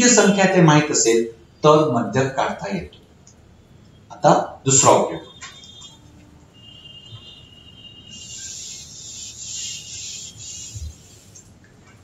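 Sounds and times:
duster wiping whiteboard: 0:08.1 - 0:11.5.

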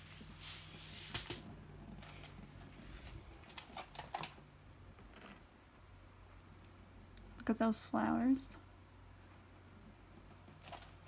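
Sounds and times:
plastic film crinkling: 0:02.0 - 0:04.4, 0:10.5 - 0:11.0.

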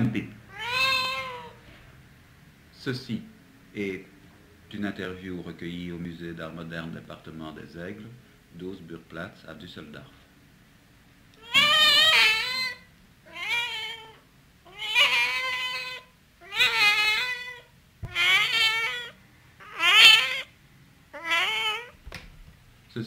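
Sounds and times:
cat meowing: 0:00.5 - 0:01.6, 0:11.4 - 0:20.5, 0:21.1 - 0:22.0.

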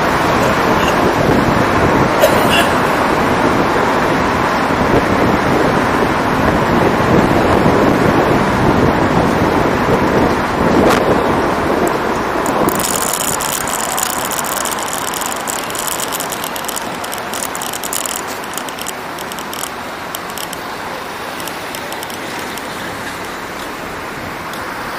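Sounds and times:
car road and engine noise: 0:00.0 - 0:24.9
rapid irregular clicking rattle: 0:11.9 - 0:23.4.

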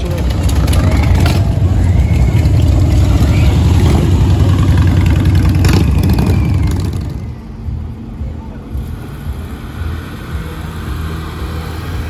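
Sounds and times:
motorcycles riding past: 0:00.0 - 0:07.4.

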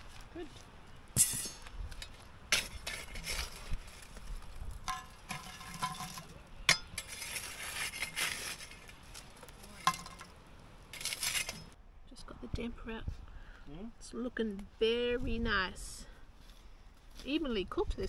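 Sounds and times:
metal scraping: 0:01.2 - 0:04.2, 0:04.8 - 0:11.8
metal pot lid clinks and knocks: 0:04.9 - 0:06.9.

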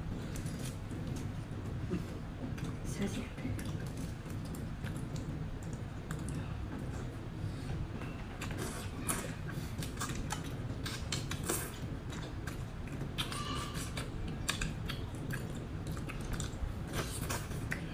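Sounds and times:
steady low hum: 0:00.0 - 0:17.9
chewing and wet mouth smacks: 0:08.4 - 0:17.9.

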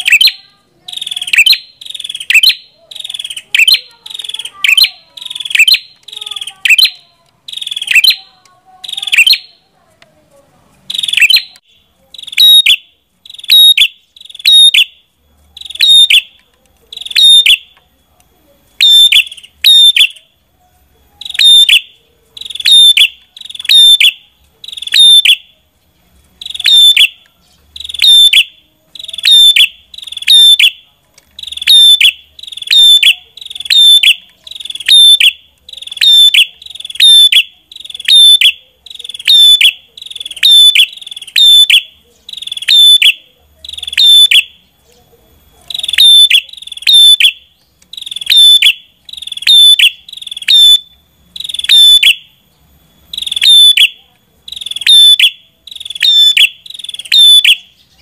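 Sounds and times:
bird calling sharp high notes: 0:00.0 - 0:09.6, 0:10.8 - 0:15.0, 0:15.6 - 0:17.8, 0:18.8 - 0:20.3, 0:21.2 - 0:25.5, 0:26.4 - 0:44.7, 0:53.0 - 0:58.0.

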